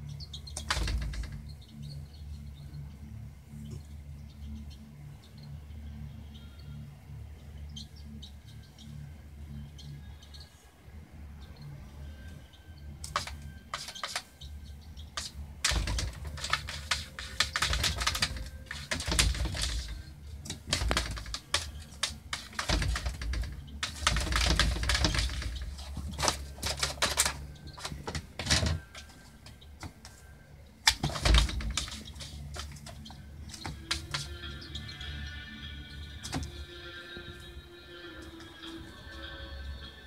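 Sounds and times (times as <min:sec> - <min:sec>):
cat claws tapping on glass screen: 0:13.0 - 0:14.3, 0:15.2 - 0:29.1, 0:30.8 - 0:34.3.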